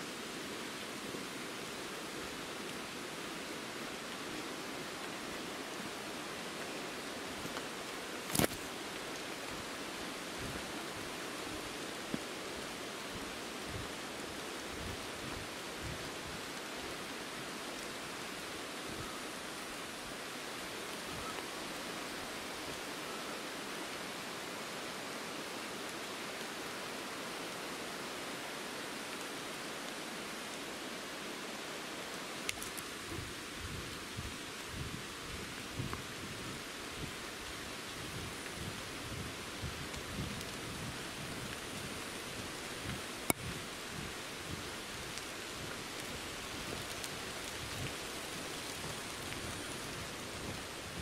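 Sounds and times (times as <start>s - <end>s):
mountain stream rushing: 0.0s - 51.0s
faint click: 43.2s - 43.5s.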